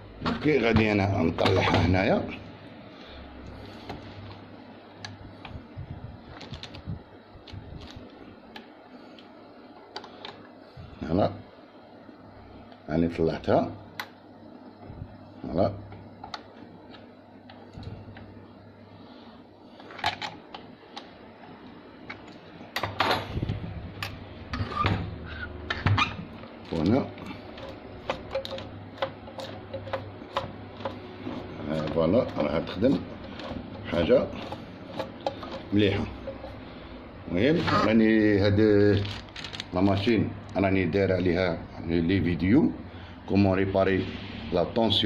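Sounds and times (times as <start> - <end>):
screwdriver clicking on metal parts: 27.6 - 31.0.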